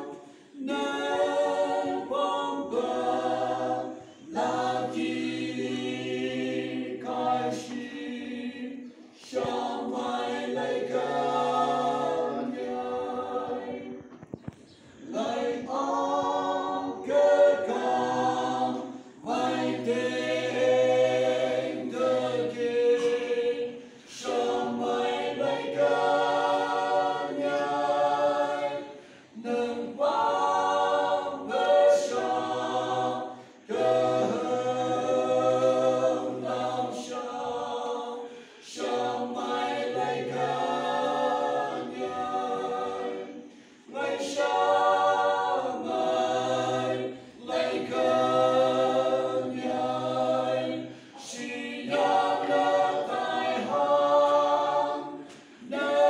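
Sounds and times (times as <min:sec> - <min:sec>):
group singing a hymn in harmony: 0:00.0 - 0:56.0.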